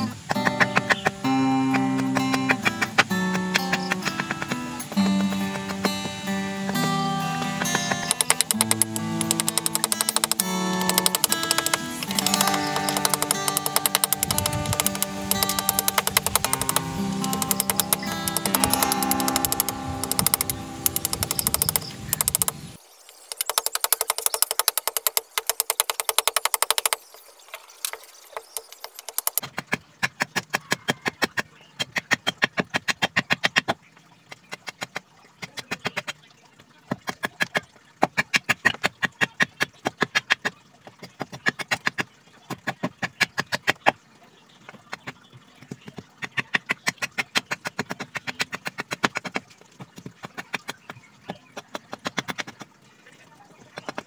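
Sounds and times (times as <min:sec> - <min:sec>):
blade chopping wood: 0:00.0 - 0:22.6, 0:23.3 - 0:27.0, 0:27.9 - 0:33.8, 0:44.9 - 0:52.7.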